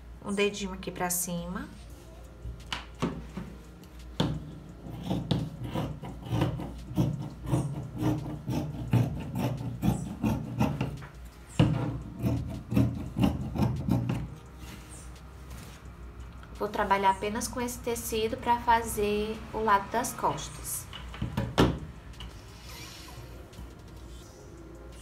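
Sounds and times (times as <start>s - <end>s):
scissors cutting fabric: 4.6s - 14.4s.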